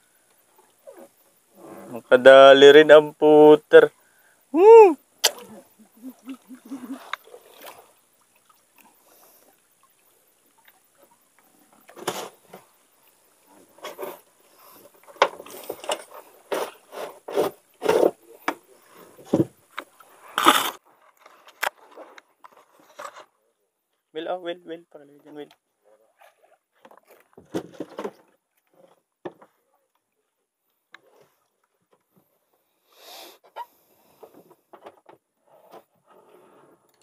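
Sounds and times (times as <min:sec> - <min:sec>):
voice-like cry: 0:04.5 - 0:07.1
water splashing against boat: 0:05.2 - 0:20.8.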